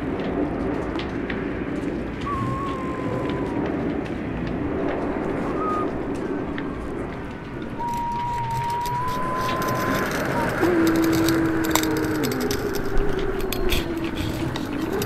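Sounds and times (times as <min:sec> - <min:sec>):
wind rumbling on microphone: 0:00.0 - 0:15.0
thin high whistle: 0:02.2 - 0:03.6, 0:05.3 - 0:06.0, 0:07.7 - 0:11.5.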